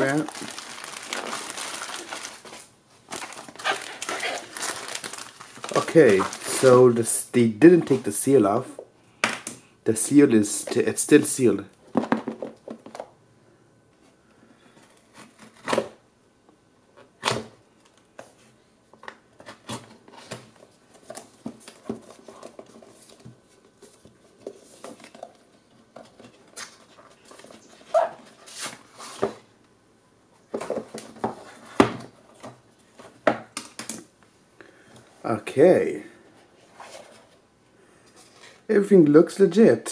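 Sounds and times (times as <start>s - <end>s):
cardboard and plastic rustling: 0.0s - 7.0s, 18.2s - 29.5s, 30.5s - 33.3s.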